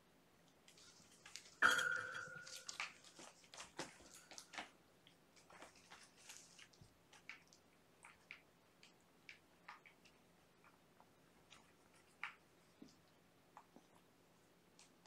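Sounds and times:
light clicks taps and scratches: 0:00.4 - 0:14.1, 0:14.7 - 0:15.0
sharp ringing knock: 0:01.6 - 0:02.5.

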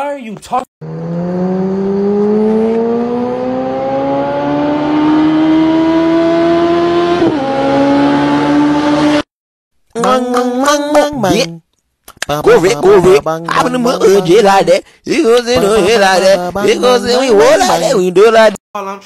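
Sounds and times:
car engine accelerating: 0:00.8 - 0:09.3.

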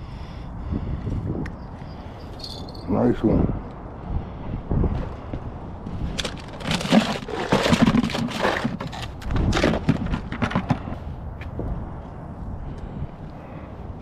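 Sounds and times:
handling noise rustling and scraping: 0:05.9 - 0:11.6.

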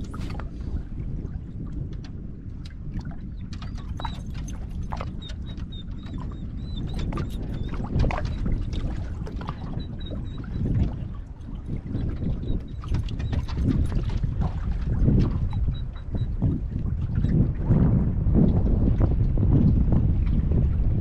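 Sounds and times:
waves slapping against boat hull: 0:00.0 - 0:21.0
wind rumbling on microphone: 0:00.0 - 0:21.0.

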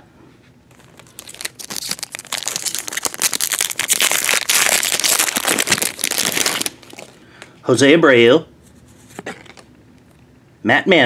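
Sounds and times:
foil wrapper crinkling: 0:00.7 - 0:07.2.

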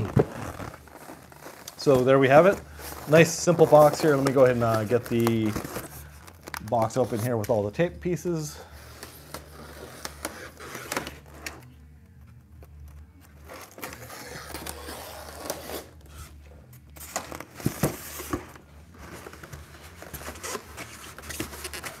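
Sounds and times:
cardboard rustling and scraping: 0:00.0 - 0:07.7, 0:17.0 - 0:22.0
blade slitting packing tape: 0:08.9 - 0:11.7, 0:13.4 - 0:16.2.

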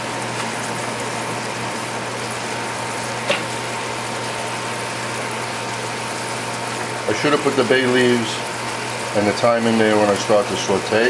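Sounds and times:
wine sizzling in a pan: 0:00.0 - 0:11.0.

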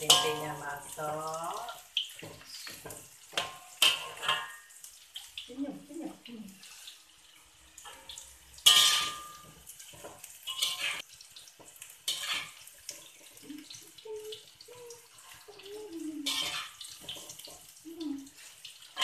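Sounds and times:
metal spatula scraping wok: 0:02.6 - 0:04.6, 0:07.8 - 0:11.1, 0:12.0 - 0:13.1, 0:16.2 - 0:17.6.

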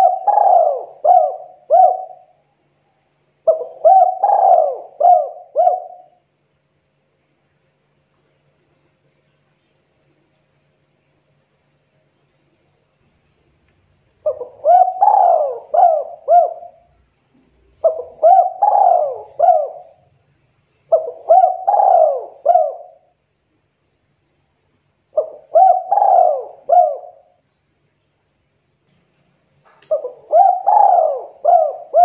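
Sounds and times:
dove cooing: 0:00.0 - 0:02.4, 0:03.4 - 0:06.2, 0:14.2 - 0:20.1, 0:20.9 - 0:23.1, 0:25.1 - 0:27.4, 0:29.9 - 0:32.0.

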